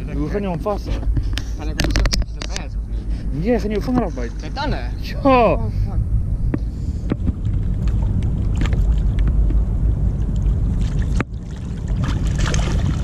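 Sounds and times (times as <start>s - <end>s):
wind rumble on microphone: 0.0s - 13.0s
faint clicks and knocks: 1.0s - 2.7s
water lapping against boat hull: 6.6s - 13.0s.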